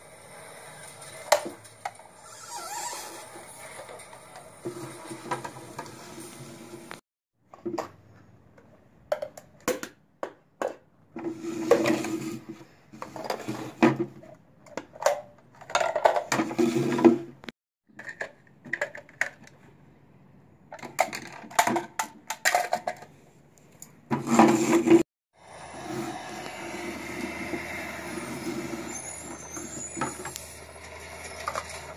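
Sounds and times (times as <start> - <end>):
plastic toy carts clattering on concrete: 14.7 - 17.2, 20.7 - 23.2, 29.6 - 31.9.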